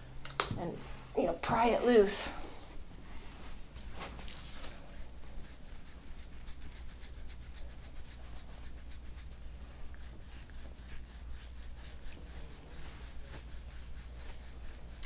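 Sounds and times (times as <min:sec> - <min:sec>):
low steady hum: 0:00.0 - 0:15.0
fingers rubbing skin: 0:04.0 - 0:15.0.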